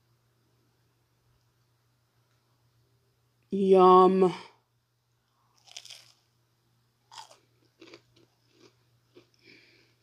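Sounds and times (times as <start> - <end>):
crunchy chewing: 5.4 - 6.3, 7.0 - 10.0.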